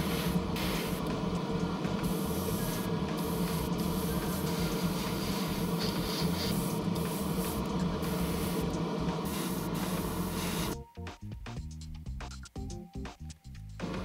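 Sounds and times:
airbrush spray hiss: 0:00.0 - 0:01.1, 0:01.9 - 0:10.8
compressor motor hum: 0:00.0 - 0:10.8.

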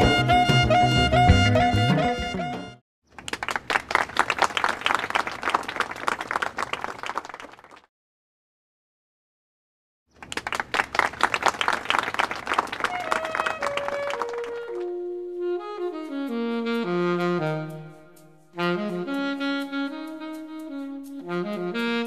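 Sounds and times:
crowd applause: 0:03.2 - 0:07.9, 0:10.2 - 0:14.8.

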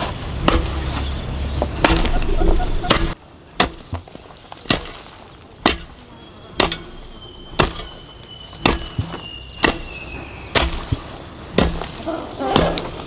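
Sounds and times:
hoe chopping into hard soil: 0:00.0 - 0:02.3, 0:02.9 - 0:07.0, 0:07.6 - 0:13.0.

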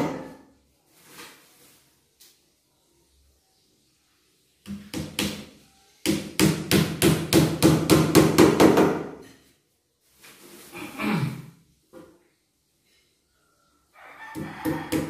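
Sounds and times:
hammer striking nails into wood: 0:06.1 - 0:09.2.

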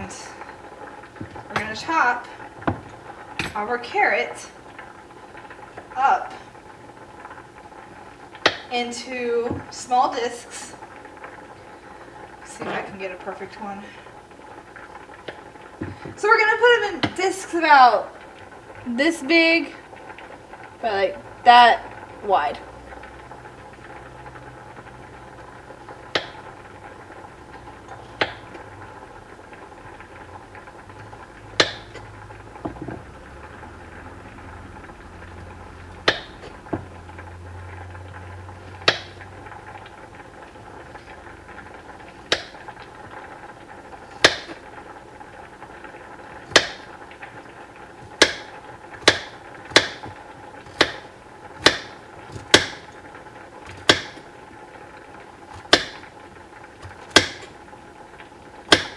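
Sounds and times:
knife chopping carrot: 0:31.6 - 0:31.8, 0:36.1 - 0:36.3, 0:38.8 - 0:39.1, 0:46.5 - 0:46.8, 0:48.2 - 0:48.4, 0:49.0 - 0:50.1, 0:50.7 - 0:51.0, 0:51.6 - 0:52.8, 0:53.7 - 0:54.2, 0:56.8 - 0:57.5.

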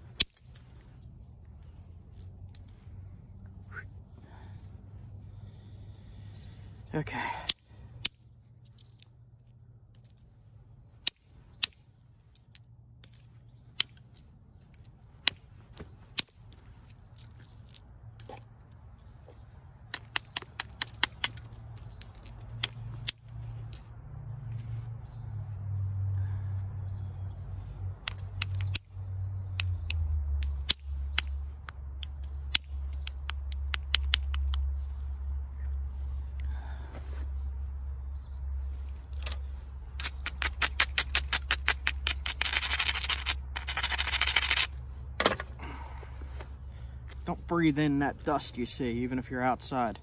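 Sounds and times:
stone knapping clicks and taps: 0:19.9 - 0:23.8, 0:28.0 - 0:28.9, 0:29.5 - 0:34.7.

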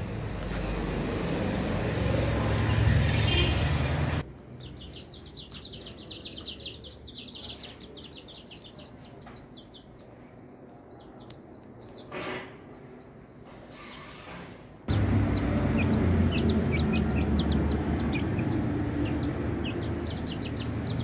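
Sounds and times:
bird chirping: 0:04.5 - 0:14.2, 0:14.9 - 0:21.0.

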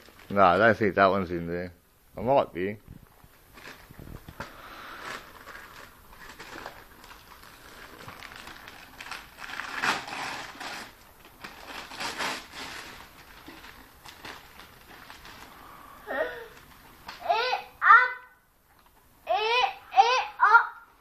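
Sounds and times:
wrapping paper tearing and crumpling: 0:00.0 - 0:00.7, 0:03.4 - 0:16.8.

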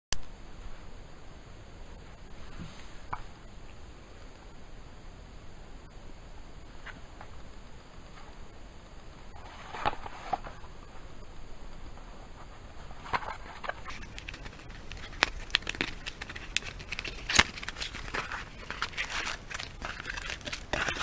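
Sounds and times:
cardboard taps scrapes and rustling: 0:13.1 - 0:21.0.

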